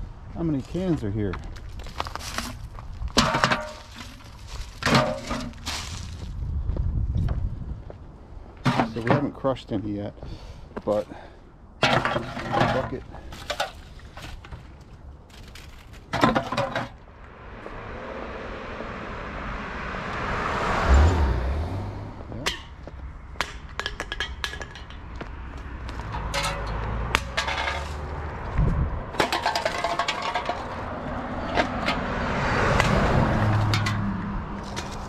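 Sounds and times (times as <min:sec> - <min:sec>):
aluminum cans clinking: 0:03.2 - 0:04.2, 0:04.8 - 0:05.6, 0:11.8 - 0:14.6, 0:15.5 - 0:17.0, 0:26.1 - 0:28.1, 0:29.1 - 0:32.0, 0:32.8 - 0:35.0
car passing: 0:17.0 - 0:23.4, 0:25.0 - 0:35.0.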